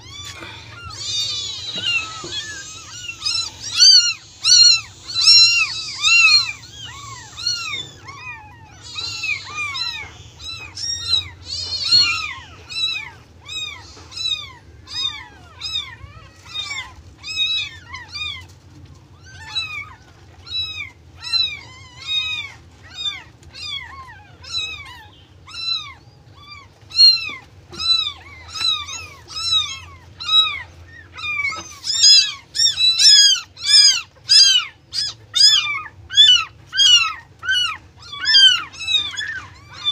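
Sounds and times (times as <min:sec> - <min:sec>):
kitten mewing: 0:00.0 - 0:18.6.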